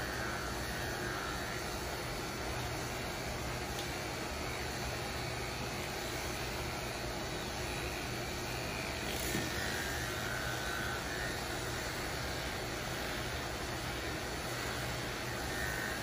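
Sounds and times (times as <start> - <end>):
electric clippers humming: 0.0 - 16.0.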